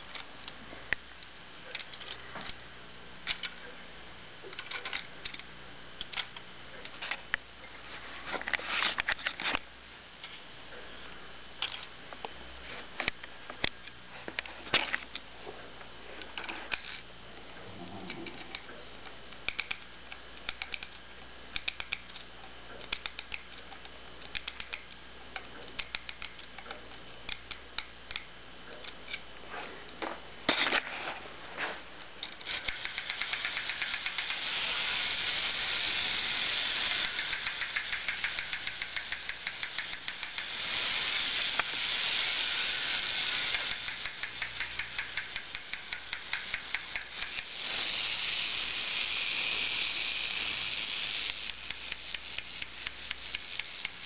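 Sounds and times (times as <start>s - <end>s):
ratchet clicks of key winding: 4.5s - 6.4s, 19.3s - 21.0s, 21.6s - 29.2s, 32.2s - 54.0s
clockwork rattling buzz: 32.4s - 54.0s.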